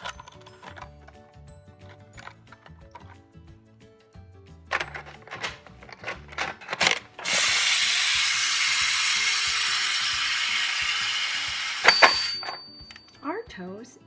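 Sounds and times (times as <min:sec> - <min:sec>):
plastic toy clicks and knocks: 0:00.0 - 0:03.2, 0:04.7 - 0:13.2
toy toaster electronic hiss: 0:07.2 - 0:12.6.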